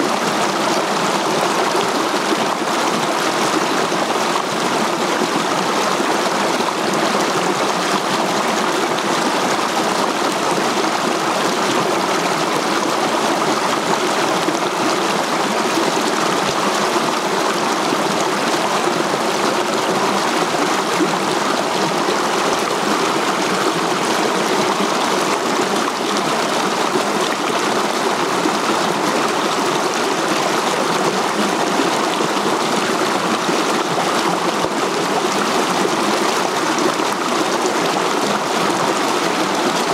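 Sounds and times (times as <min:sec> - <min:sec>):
river rushing over boulders: 0:00.0 - 0:39.9.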